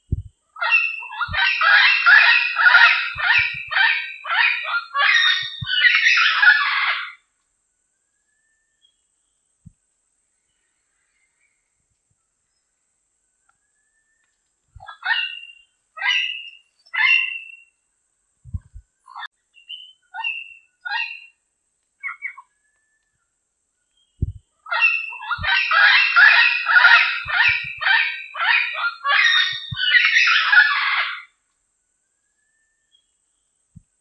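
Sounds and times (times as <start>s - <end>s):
parrot squawking: 0.6s - 7.2s, 14.8s - 17.6s, 20.2s - 21.3s, 24.7s - 31.3s.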